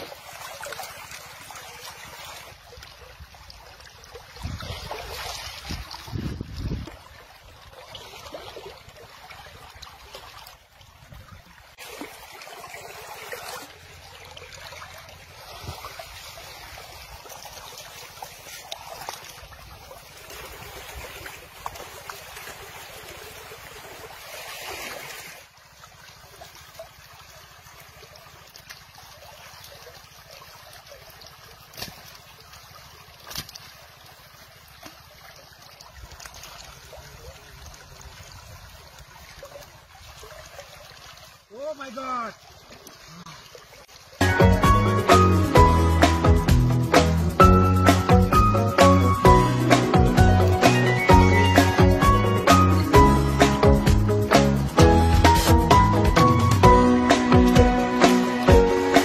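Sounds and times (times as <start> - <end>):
river water rushing: 0.0 - 46.2.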